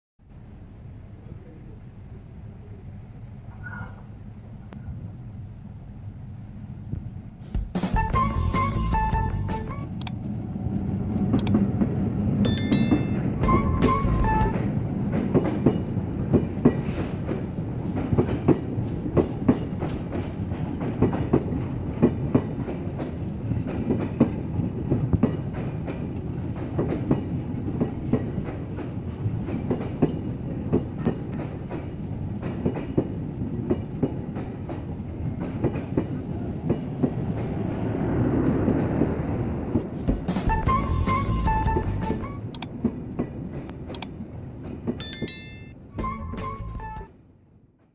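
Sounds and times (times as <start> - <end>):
train wheels rumbling on rail: 0.3 - 45.0
rail clacks: 11.0 - 41.2, 42.0 - 46.6.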